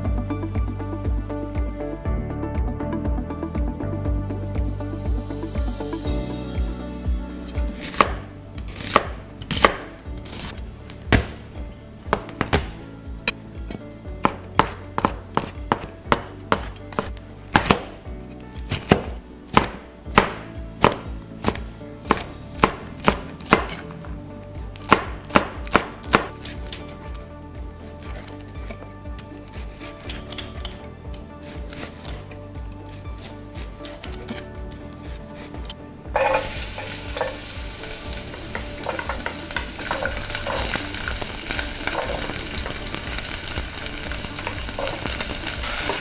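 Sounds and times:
knife chopping on plastic board: 8.8 - 10.5, 14.2 - 18.0, 18.7 - 23.8, 24.8 - 26.3.

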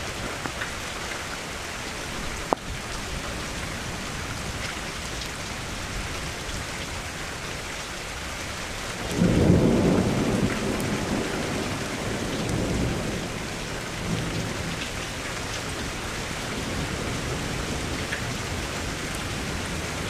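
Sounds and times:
steady rain: 0.0 - 20.0
thunder rumbling: 8.9 - 20.0.

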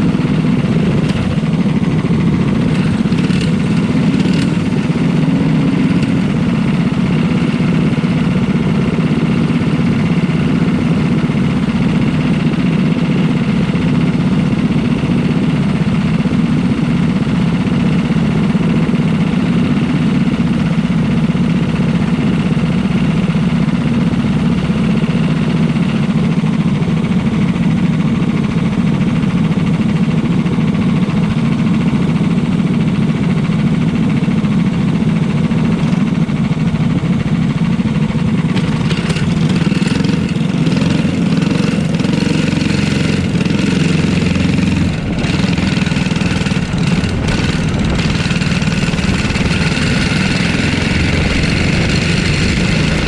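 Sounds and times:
kart engine idling: 0.0 - 53.0.

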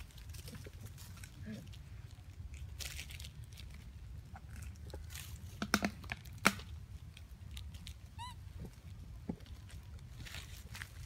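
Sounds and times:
high arching squeak: 8.2 - 8.4
monkey squeaks: 8.2 - 8.4.

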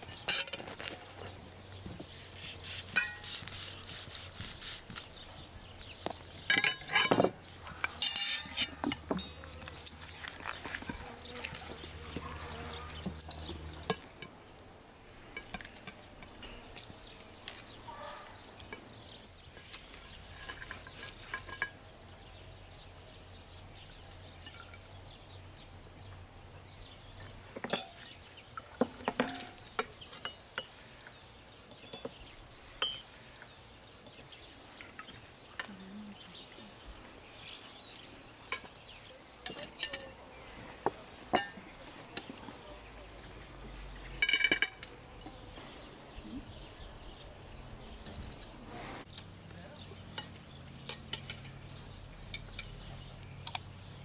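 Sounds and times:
cutlery clinking on china plates: 3.0 - 3.3, 6.5 - 9.6, 27.6 - 28.0, 31.7 - 32.2, 39.4 - 40.2, 41.3 - 41.6, 44.2 - 45.0.

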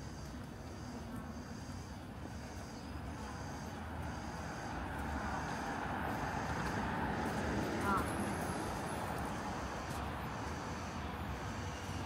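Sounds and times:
traffic rumble: 0.0 - 12.0.

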